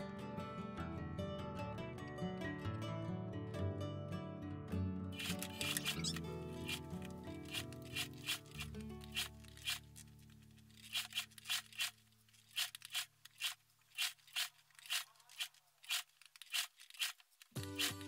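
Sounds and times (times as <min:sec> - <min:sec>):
background music: 0:00.0 - 0:11.0, 0:17.6 - 0:18.0.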